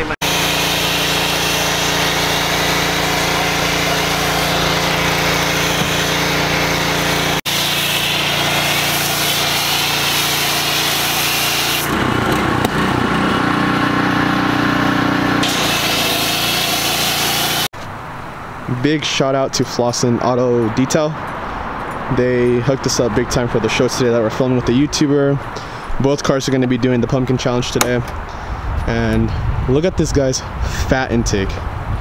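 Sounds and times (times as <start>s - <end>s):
pressure washer motor hum: 0.0s - 17.7s.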